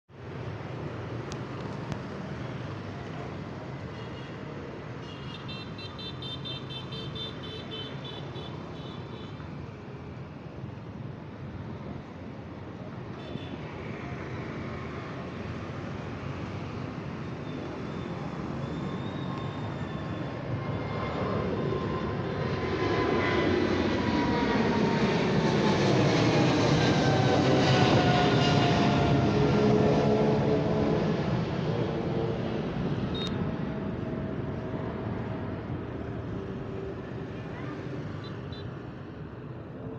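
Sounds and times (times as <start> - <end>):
road traffic rumble: 0.1 - 39.9
jet engines roaring at takeoff: 0.2 - 5.0, 8.2 - 39.9
engine whine: 11.6 - 39.9.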